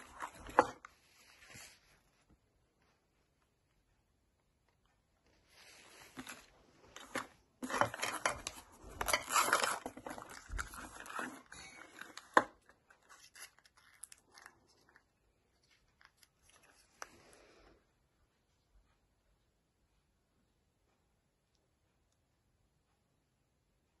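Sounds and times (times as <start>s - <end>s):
plastic wrapping crinkling and tearing: 6.1s - 15.0s.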